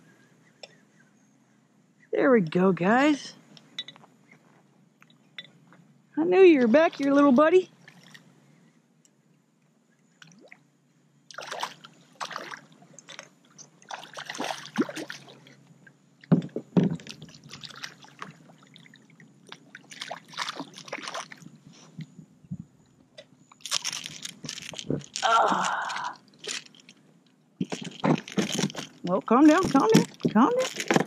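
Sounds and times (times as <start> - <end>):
water splashing and sloshing: 6.3 - 8.3, 10.1 - 22.1.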